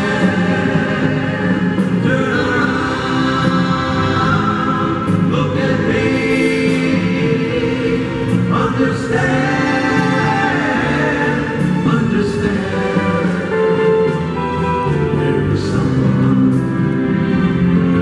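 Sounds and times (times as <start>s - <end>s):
drums: 0.0s - 18.0s
electric bass: 0.0s - 18.0s
male singers in harmony: 0.0s - 18.0s.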